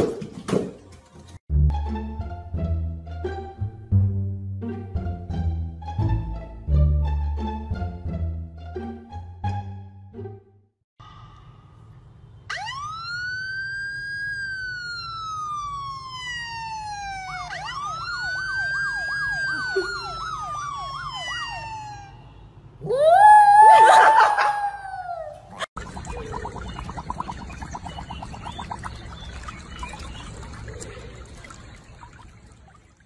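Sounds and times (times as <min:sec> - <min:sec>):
siren wailing from a phone: 0:12.5 - 0:22.4
dog howling: 0:22.8 - 0:25.5.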